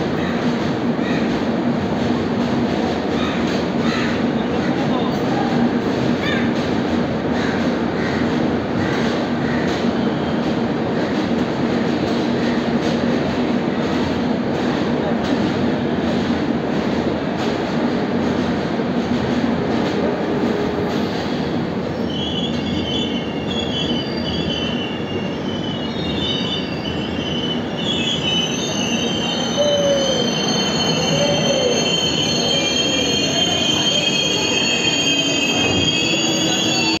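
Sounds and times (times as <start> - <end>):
train coach rumbling: 0.0 - 37.0
high-pitched wheel squeal: 22.0 - 37.0.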